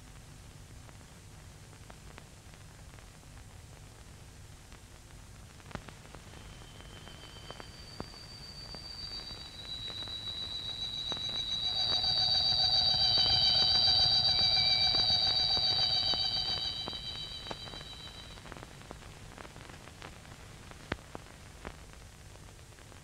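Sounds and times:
film hiss: 0.0 - 23.0
crackle clicks: 1.8 - 23.0
steady high-pitched tones: 6.1 - 18.5.

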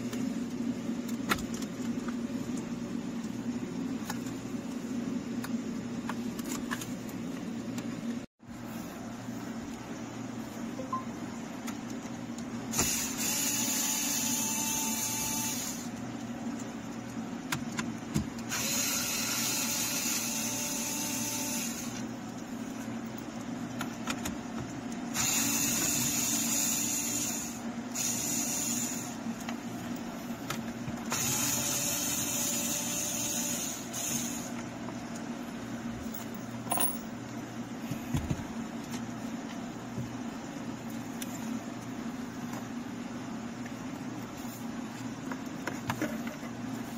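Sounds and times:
low steady hum: 0.0 - 18.5, 19.5 - 46.9
cordless drill running: 31.1 - 34.5.

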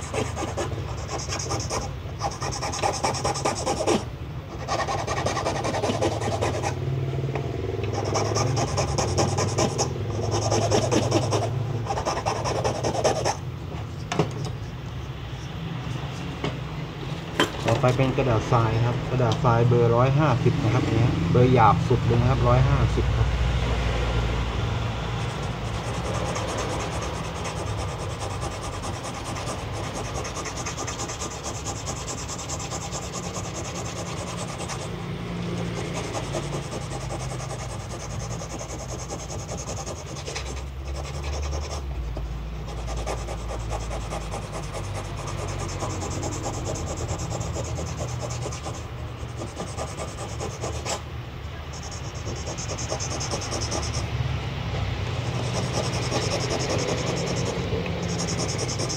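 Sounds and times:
sandpaper scratching on acrylic: 0.0 - 6.8, 8.0 - 13.4, 25.1 - 51.0, 51.6 - 54.1, 55.2 - 58.9.

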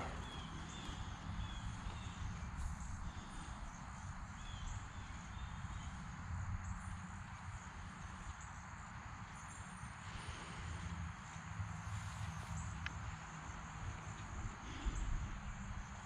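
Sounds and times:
low uneven rumble: 0.0 - 6.9.

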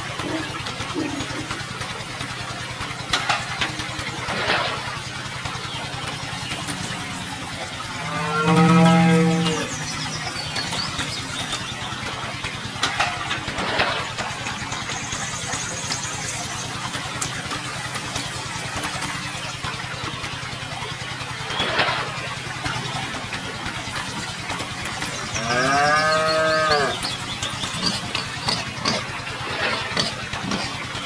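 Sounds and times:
low motor hum: 0.0 - 31.0
water splashing into pond: 0.0 - 31.0
cow mooing: 7.9 - 10.0, 25.4 - 27.0.

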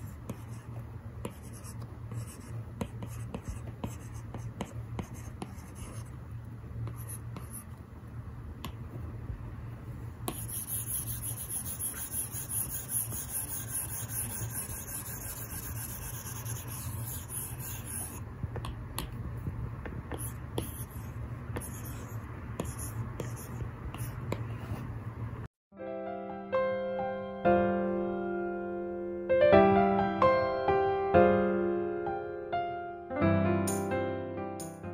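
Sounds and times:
stylus scratching on tablet screen: 0.0 - 6.2, 6.8 - 7.8, 10.3 - 18.2, 20.1 - 24.9.

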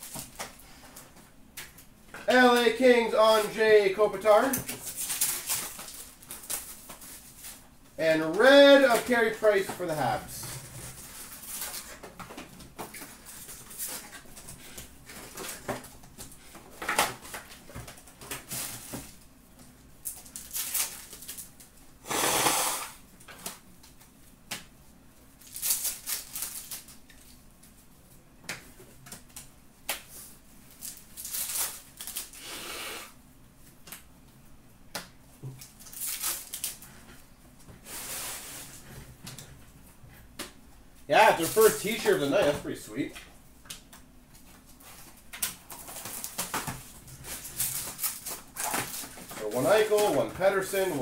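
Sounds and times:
cards and foil wrappers rustling: 2.3 - 19.3, 20.0 - 21.8, 25.3 - 27.8, 30.0 - 32.5, 35.5 - 37.2, 41.1 - 43.1, 43.8 - 51.0.

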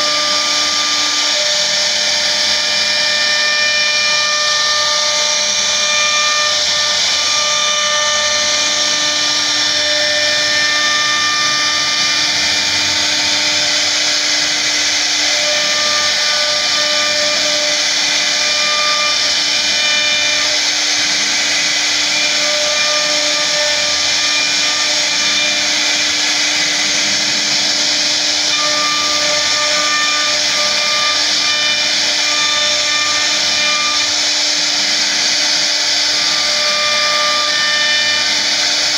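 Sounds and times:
bit cutting wood: 0.0 - 38.9
router spindle whining: 0.0 - 38.9.

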